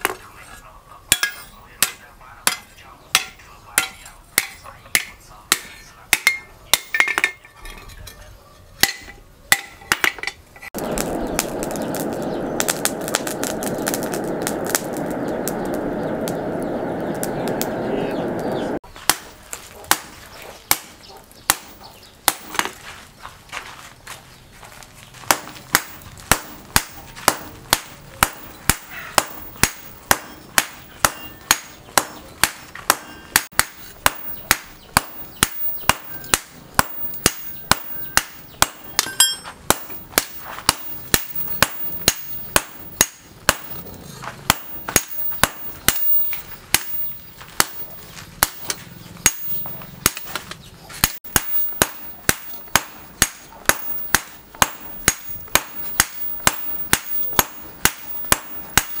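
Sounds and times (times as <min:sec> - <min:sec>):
hammer striking metal on anvil: 0:01.1 - 0:07.5, 0:08.8 - 0:10.4, 0:25.3 - 0:59.0.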